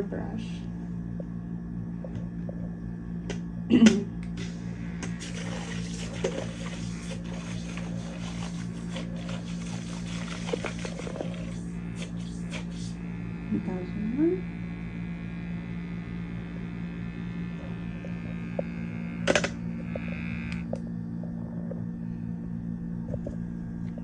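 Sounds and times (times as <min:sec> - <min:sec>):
small motor whirring: 0:04.3 - 0:20.8
water swishing: 0:05.2 - 0:11.6.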